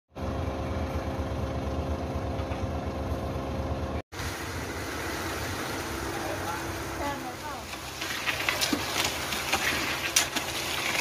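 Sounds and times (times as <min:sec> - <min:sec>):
noisy truck engine: 0:00.1 - 0:11.0
diesel engine idling: 0:00.2 - 0:09.5
concrete sliding down a chute: 0:05.5 - 0:11.0.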